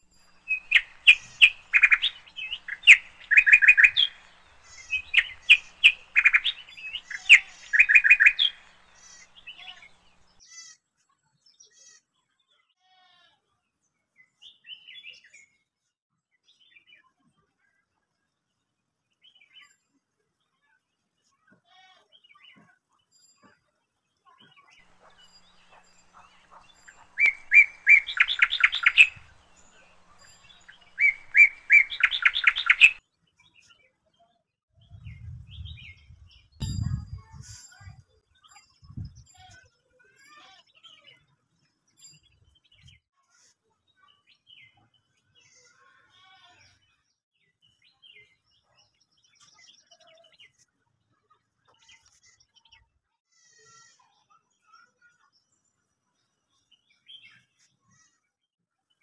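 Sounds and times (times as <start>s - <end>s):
faint bird chirps: 0.0s - 10.4s, 24.2s - 39.7s
songbird singing: 0.0s - 10.4s, 24.4s - 39.7s.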